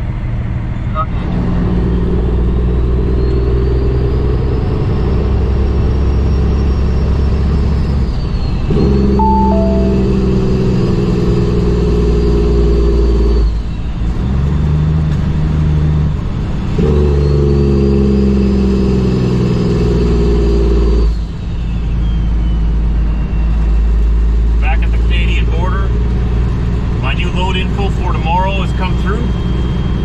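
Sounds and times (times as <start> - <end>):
diesel truck engine pulling: 22.4 - 30.0.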